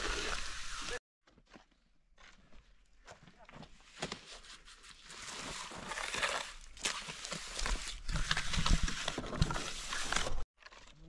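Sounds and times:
shovel scraping wet concrete: 5.6 - 11.0.

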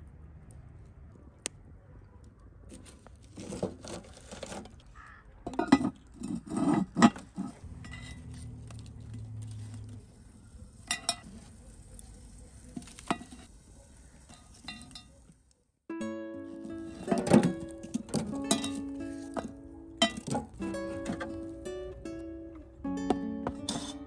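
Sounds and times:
metal tongs setting coals: 5.5 - 10.0, 10.7 - 13.5, 14.2 - 15.3, 16.7 - 22.0, 23.4 - 24.0
metal lid clanking on pot: 17.0 - 21.4, 23.4 - 24.0.

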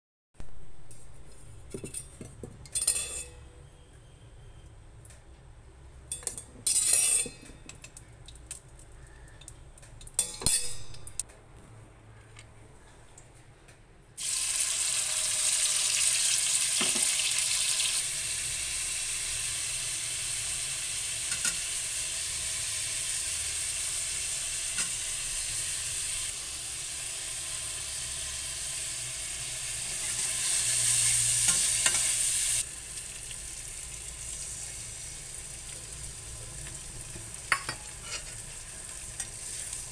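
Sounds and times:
utensils clinking on pan: 1.7 - 3.5, 6.1 - 8.0, 10.0 - 11.2, 21.3 - 21.7, 29.9 - 32.3, 37.4 - 39.9
metal spatula stirring: 6.2 - 7.9, 37.5 - 39.8
vegetables sizzling in hot oil: 14.2 - 39.9.

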